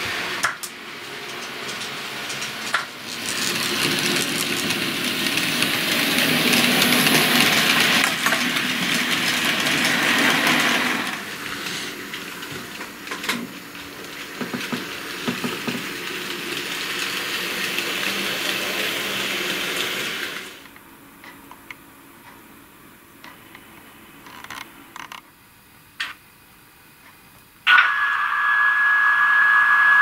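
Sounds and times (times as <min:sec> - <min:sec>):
wheels clicking on track: 0:00.0 - 0:22.4
model train rolling and motor noise: 0:00.0 - 0:25.4.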